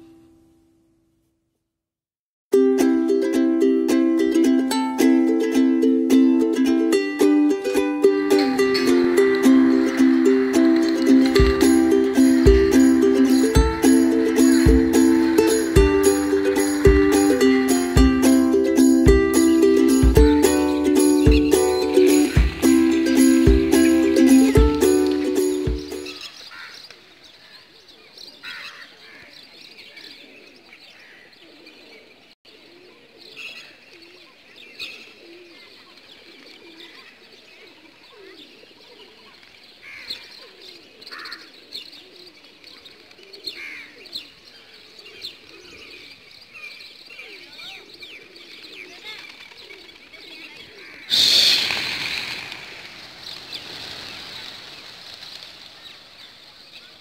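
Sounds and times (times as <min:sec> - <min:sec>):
pigeons cooing: 0:07.8 - 0:26.2, 0:29.9 - 0:39.4, 0:40.0 - 0:54.9
high bird chirps: 0:19.1 - 0:26.5
rush of pigeon wings: 0:49.1 - 0:50.2, 0:51.1 - 0:56.5.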